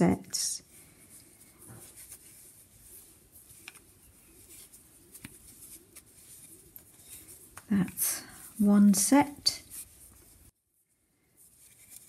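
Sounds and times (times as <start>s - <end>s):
knitting needles clicking: 3.6s - 3.8s.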